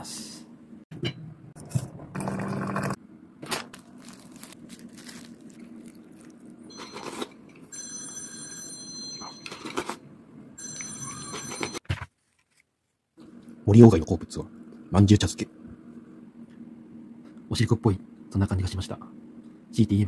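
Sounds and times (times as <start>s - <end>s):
hot water pouring into teapot: 2.1s - 3.0s
ringing bell tone: 7.7s - 9.6s, 10.6s - 11.8s.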